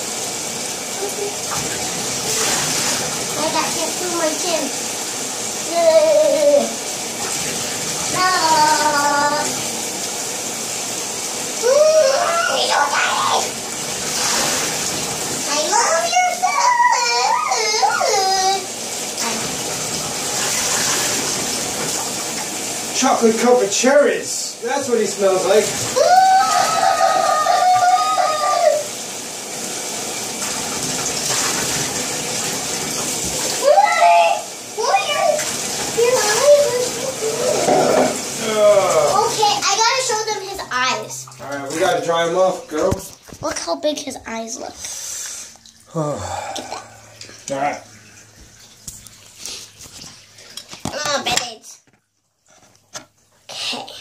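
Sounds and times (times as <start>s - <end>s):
water splashing in a bathtub: 0.0s - 54.0s
short vocal sounds: 45.9s - 47.0s.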